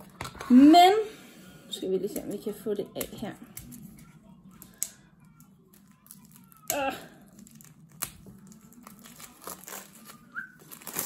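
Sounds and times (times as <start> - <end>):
plastic seal being peeled: 3.6 - 11.0.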